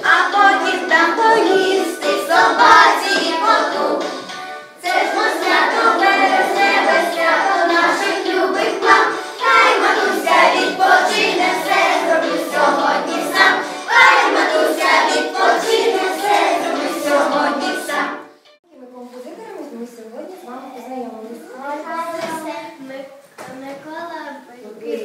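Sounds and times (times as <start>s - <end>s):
children singing in unison: 0.0s - 18.4s.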